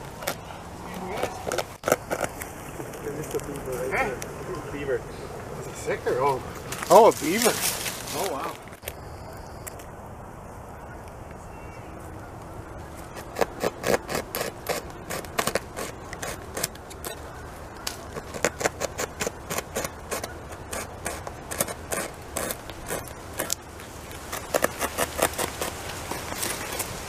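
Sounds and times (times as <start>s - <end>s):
beaver gnawing wood: 0.0s - 4.4s, 13.0s - 27.0s.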